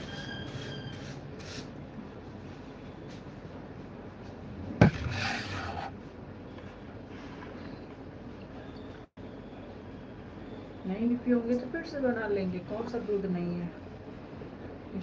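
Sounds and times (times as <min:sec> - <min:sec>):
sharp knock: 0:04.8 - 0:05.3.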